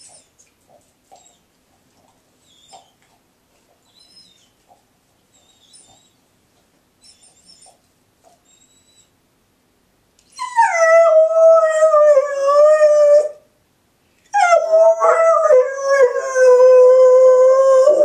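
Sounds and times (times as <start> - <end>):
dog howling: 10.4 - 13.4, 14.4 - 18.0.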